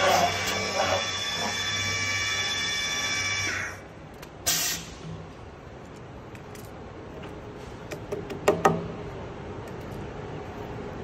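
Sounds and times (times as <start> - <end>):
pneumatic air hiss: 4.4 - 5.2.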